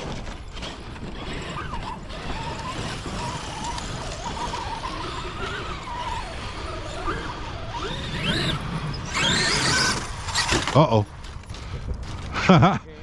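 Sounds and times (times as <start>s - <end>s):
electric motor whine: 0.5s - 10.8s.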